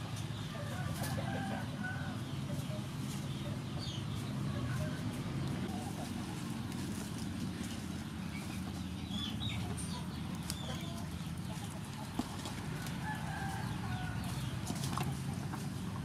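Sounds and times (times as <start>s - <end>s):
chickens clucking: 0.0s - 16.0s
rooster crowing: 0.6s - 2.2s, 12.9s - 14.4s.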